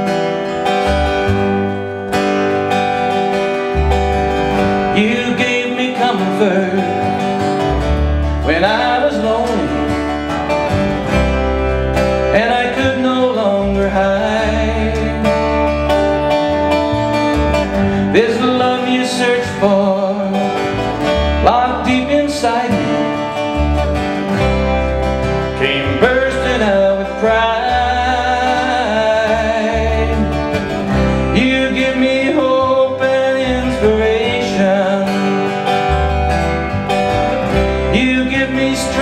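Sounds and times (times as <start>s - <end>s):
acoustic guitars strumming: 0.0s - 39.0s
upright bass plucking: 0.0s - 39.0s
man singing: 4.8s - 7.5s, 8.4s - 10.1s, 12.2s - 16.3s, 17.7s - 23.6s, 25.5s - 35.8s, 37.5s - 39.0s.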